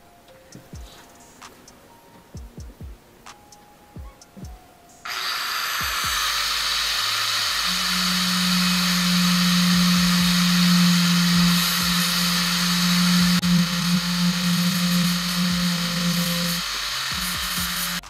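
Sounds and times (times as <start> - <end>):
strong steady hum: 4.4 - 18.0
angle grinder grinding steel: 5.1 - 18.0.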